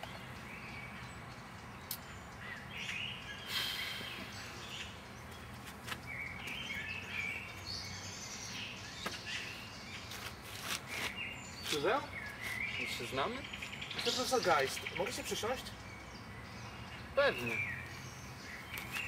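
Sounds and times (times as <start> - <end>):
songbirds chirping: 0.0 - 19.0.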